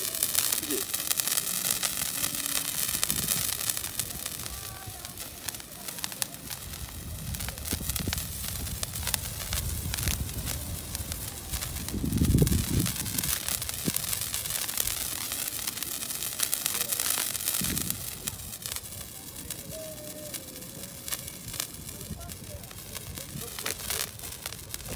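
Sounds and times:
sharp crackles: 0:00.0 - 0:24.9
sparkler fireworks hissing: 0:00.0 - 0:24.9.

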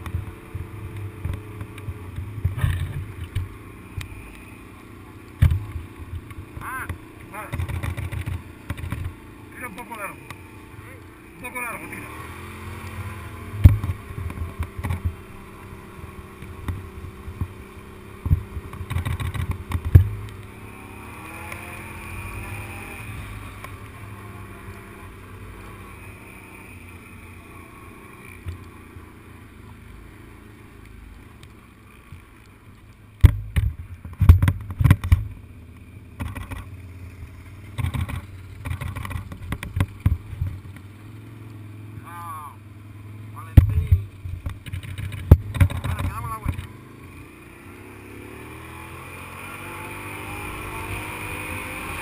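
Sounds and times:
off-road vehicle engine running: 0:00.0 - 0:52.0
vehicle thumps and rattles: 0:05.4 - 0:09.2, 0:13.6 - 0:15.2, 0:18.2 - 0:20.3, 0:33.2 - 0:35.4, 0:37.7 - 0:40.8, 0:43.5 - 0:46.7.

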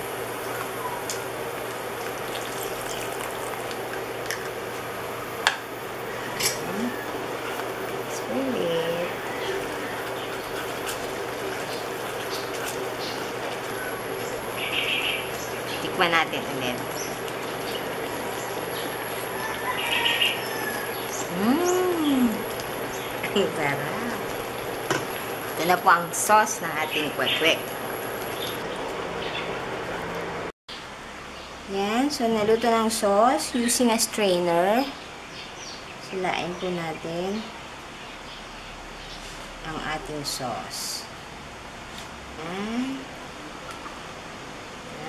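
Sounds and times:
small birds chirping: 0:06.0 - 0:29.5
voice-like hum: 0:06.5 - 0:07.2, 0:21.2 - 0:22.6
sauce simmering in a pot: 0:09.1 - 0:28.6.

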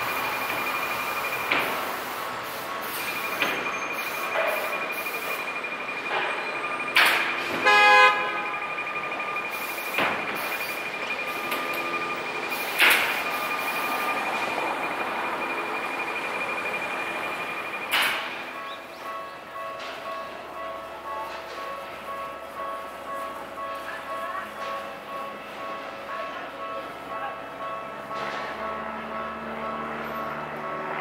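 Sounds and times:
level crossing warning bell: 0:00.0 - 0:31.0.

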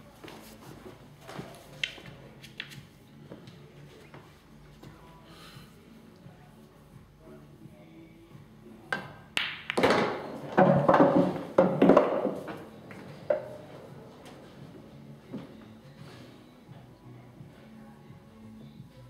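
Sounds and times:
cue tip tapping ball: 0:08.9 - 0:13.8
pool balls knocking: 0:09.0 - 0:14.4.

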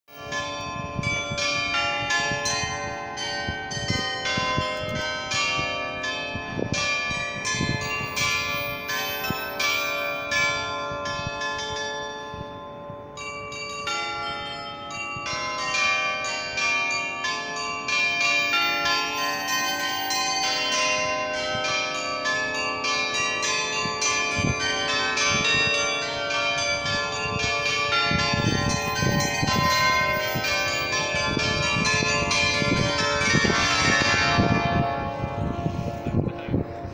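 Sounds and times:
glockenspiel bells chiming: 0:00.1 - 0:36.9.

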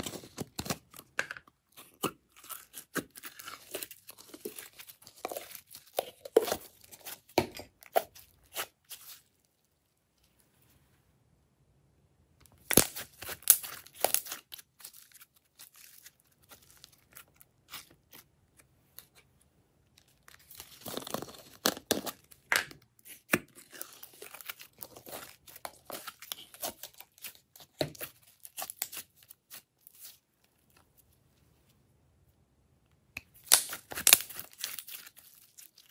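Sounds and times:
slime crackling and popping: 0:12.5 - 0:18.3, 0:33.2 - 0:35.9.

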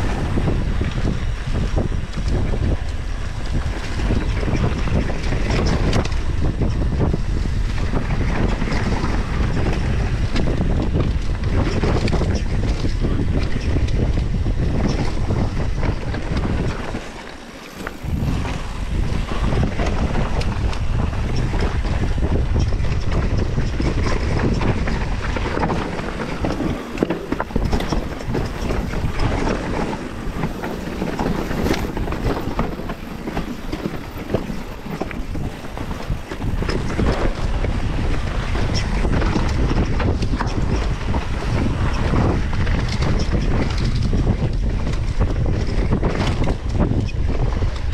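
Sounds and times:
bike knocks and rattles: 0:00.0 - 0:47.9
wind buffeting microphone: 0:00.0 - 0:47.9
tyre noise: 0:12.9 - 0:40.7.

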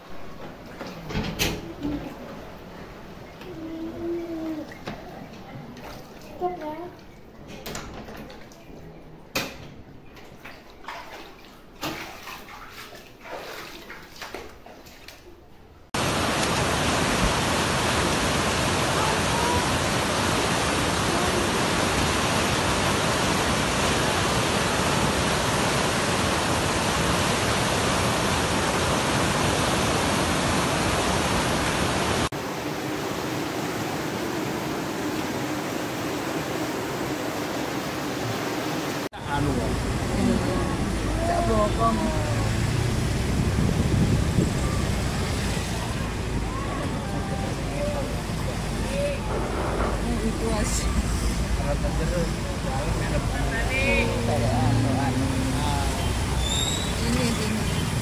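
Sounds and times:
water moving over a floor: 0:00.3 - 0:09.2, 0:10.2 - 0:24.5
rushing floodwater torrent: 0:16.0 - 0:58.0.

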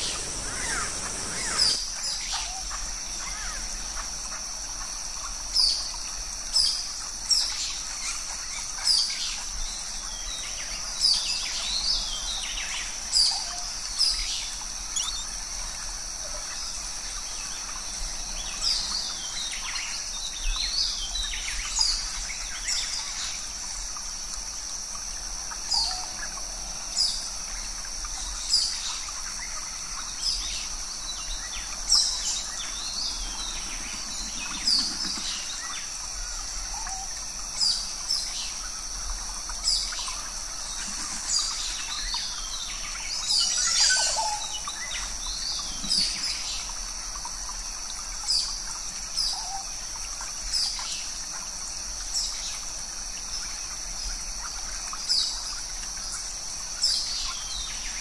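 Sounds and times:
birds chirping: 0:00.0 - 0:01.8
steady high-pitched hum: 0:00.0 - 0:04.0.

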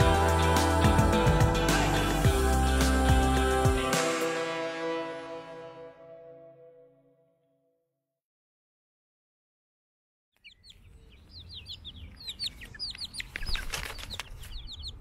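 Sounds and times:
chicks peeping: 0:10.4 - 0:15.0.

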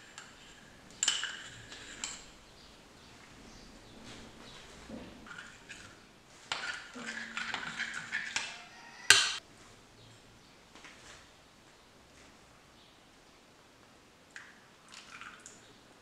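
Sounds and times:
spoon scraping glass bowl: 0:00.0 - 0:02.4, 0:05.2 - 0:09.4.

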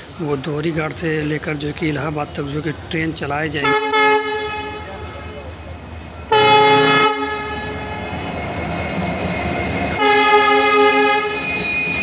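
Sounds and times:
train rumbling past: 0:00.0 - 0:12.0
locomotive horn blast: 0:03.6 - 0:05.3, 0:06.3 - 0:07.9, 0:09.9 - 0:11.6.

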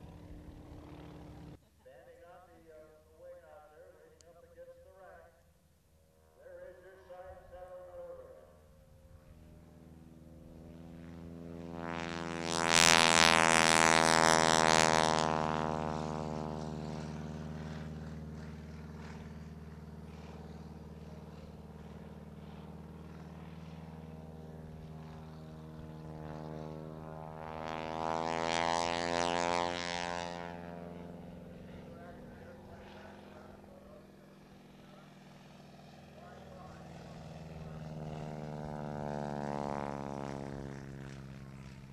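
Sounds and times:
propeller plane engine drone: 0:00.0 - 0:41.9.

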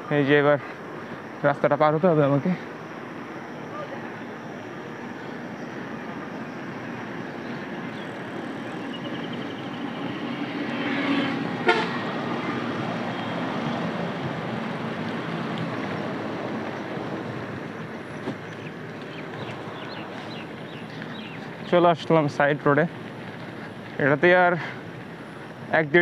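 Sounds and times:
traffic on wet highway: 0:00.0 - 0:26.0
vehicle horn blast: 0:11.6 - 0:12.1.

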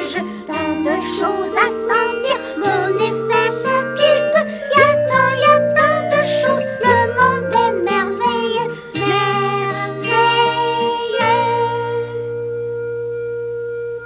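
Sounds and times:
children's song: 0:00.0 - 0:12.3.

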